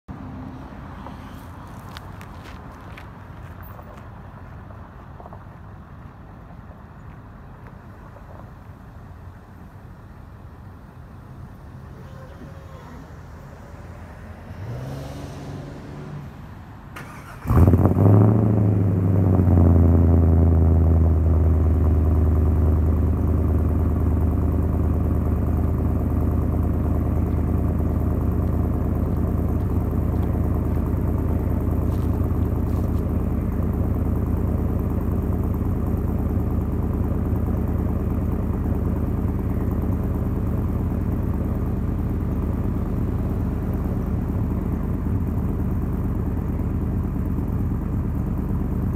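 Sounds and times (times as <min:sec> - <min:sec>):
engine starting and idling: 0:16.9 - 0:18.9.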